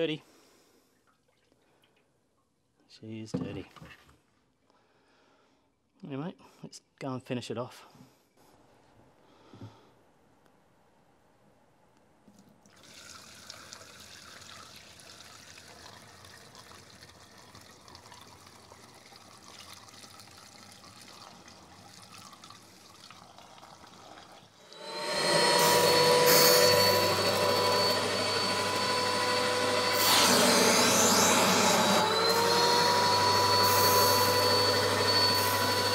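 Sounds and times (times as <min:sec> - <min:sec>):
water pouring: 0:12.6 - 0:24.8
vacuum cleaner motor whine: 0:24.6 - 0:35.9.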